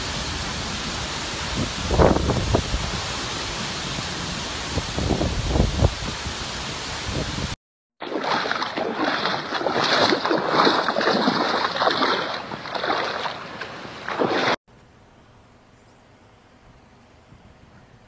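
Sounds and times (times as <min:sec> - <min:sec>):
driving rain: 0:00.0 - 0:07.6
wind gusting against microphone: 0:00.0 - 0:07.6
rushing wind and water: 0:00.0 - 0:14.6.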